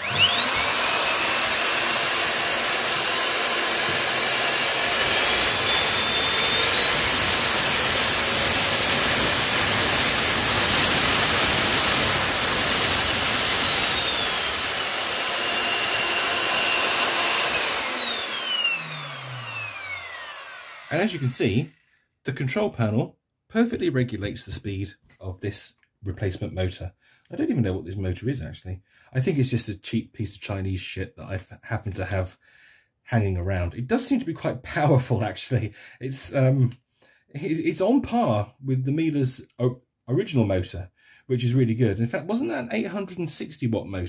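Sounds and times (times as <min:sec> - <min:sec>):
vacuum cleaner motor whine: 0:00.0 - 0:21.3.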